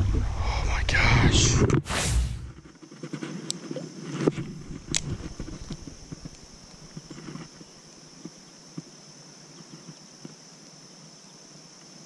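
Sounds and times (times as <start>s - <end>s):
insects trilling: 2.6s - 12.0s.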